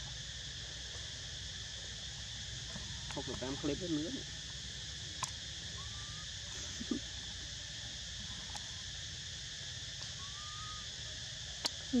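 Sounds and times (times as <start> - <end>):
insects droning: 0.0 - 12.0
faint brief whistle: 10.2 - 10.8.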